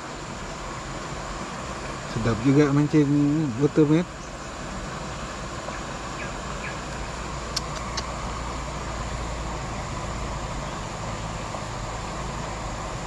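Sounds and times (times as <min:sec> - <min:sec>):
water rushing over rapids: 0:00.0 - 0:13.0
faint clicks: 0:07.5 - 0:08.1.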